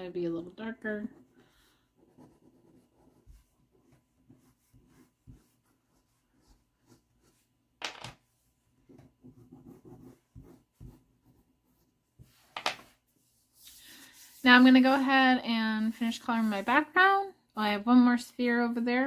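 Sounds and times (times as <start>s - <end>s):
pastel scratching on paper: 1.0s - 7.5s, 8.9s - 12.5s, 13.1s - 15.3s.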